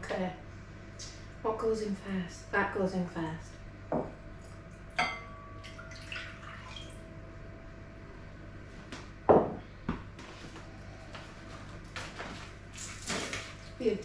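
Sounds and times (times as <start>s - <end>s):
ringing glass clink: 5.0s - 5.7s
jug knocking on worktop: 9.3s - 9.6s.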